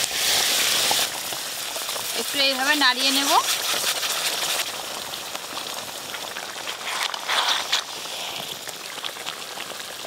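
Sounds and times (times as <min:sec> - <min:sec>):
curry sizzling and bubbling: 0:00.0 - 0:10.0
spatula scraping a pan: 0:03.0 - 0:04.7, 0:06.7 - 0:08.3.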